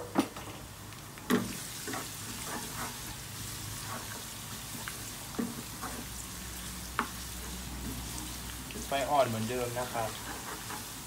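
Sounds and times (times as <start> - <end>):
garlic sizzling in hot oil: 0.6 - 11.0
wooden spatula scraping and knocking: 1.3 - 3.2, 3.8 - 4.7, 5.3 - 6.2, 6.9 - 11.0.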